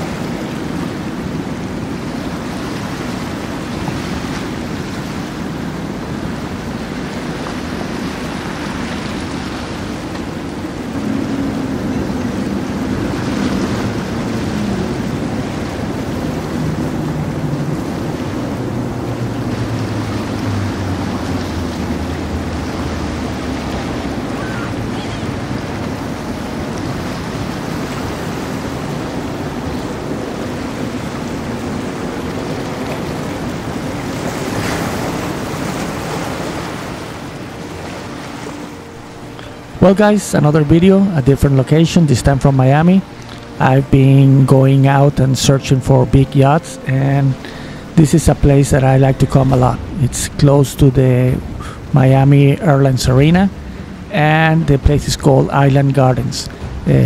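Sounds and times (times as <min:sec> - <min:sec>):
low engine hum: 0:00.0 - 0:57.0
water rushing: 0:00.0 - 0:57.0
wind rushing: 0:47.3 - 0:55.6, 0:56.2 - 0:57.0.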